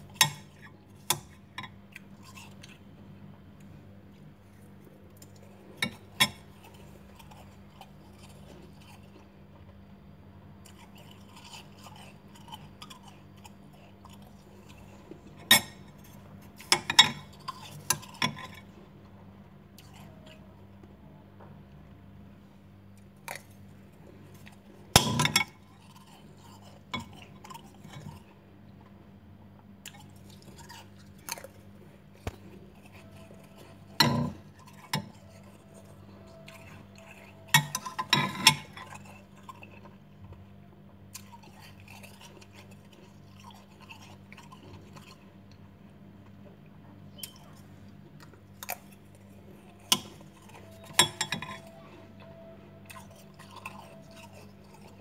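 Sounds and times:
steady low hum: 0:00.0 - 0:55.0
spoon clinking against glass: 0:50.6 - 0:51.8.

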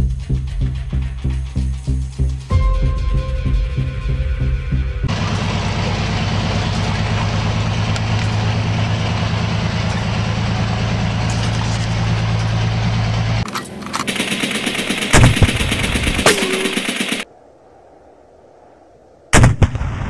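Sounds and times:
music: 0:00.0 - 0:05.1
heavy vehicle engine idling: 0:03.6 - 0:17.0.

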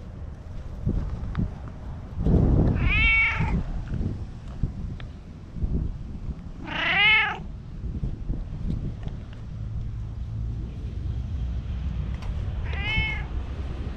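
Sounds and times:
cat meowing: 0:02.7 - 0:03.6, 0:06.6 - 0:07.4, 0:12.6 - 0:13.4.

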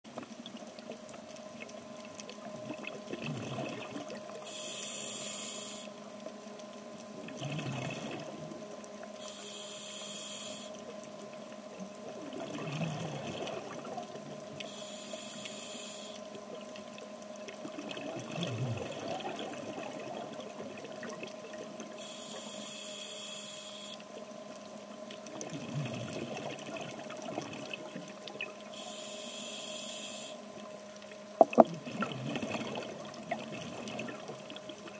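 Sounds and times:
faint steady hum: 0:00.1 - 0:34.9
exhaled bubbles rushing: 0:02.5 - 0:04.4, 0:07.2 - 0:08.6, 0:12.1 - 0:14.5, 0:17.6 - 0:21.9, 0:25.3 - 0:28.6, 0:31.4 - 0:34.9
regulator breathing: 0:04.4 - 0:06.0, 0:09.2 - 0:10.8, 0:14.6 - 0:16.2, 0:28.7 - 0:30.4.

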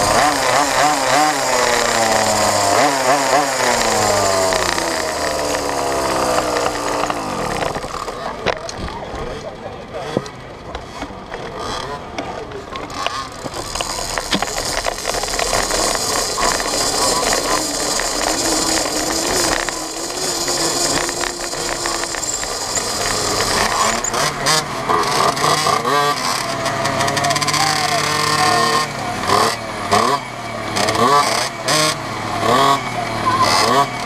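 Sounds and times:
mini moto rolling over tarmac: 0:00.0 - 0:34.0.

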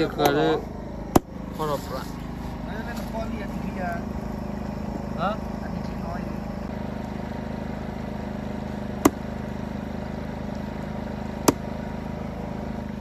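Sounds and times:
steady motor hum: 0:00.0 - 0:13.0
knife chopping onto wood: 0:09.0 - 0:09.3, 0:11.4 - 0:11.7.

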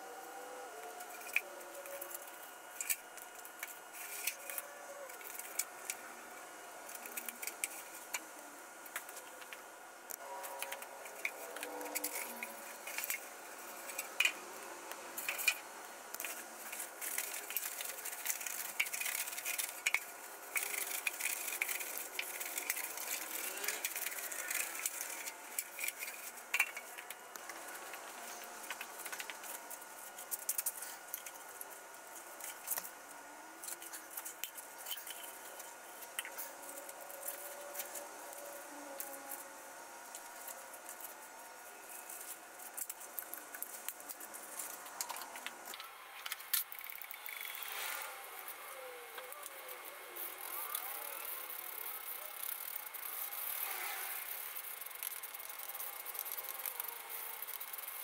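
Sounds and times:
faint steady whine: 0:00.0 - 0:58.0
small hard objects clinking: 0:16.2 - 0:32.9.

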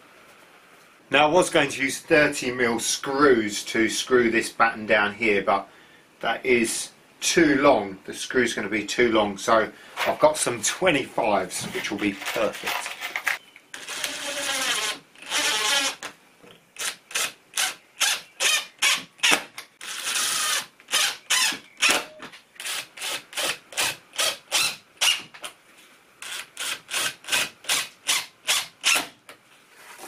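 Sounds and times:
drill driving screws into wood: 0:13.8 - 0:16.1, 0:16.8 - 0:25.3, 0:26.2 - 0:29.2.

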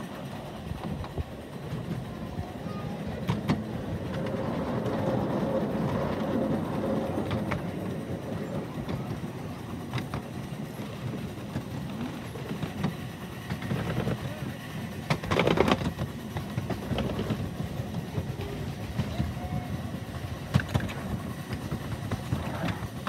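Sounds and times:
miniature steam train wheels rumbling: 0:00.0 - 0:23.0
rail joint clicks: 0:03.0 - 0:23.0.

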